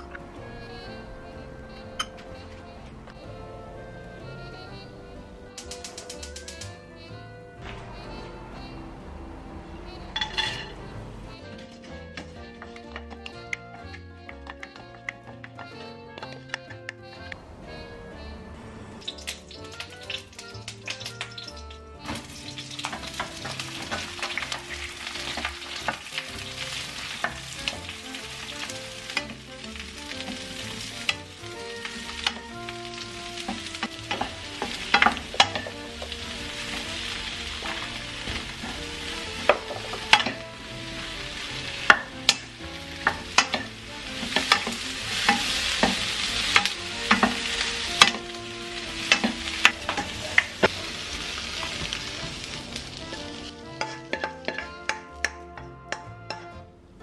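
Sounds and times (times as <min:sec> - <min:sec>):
spatula scraping a wok: 0:18.9 - 0:56.7
oil sizzling in a wok: 0:19.0 - 0:56.7.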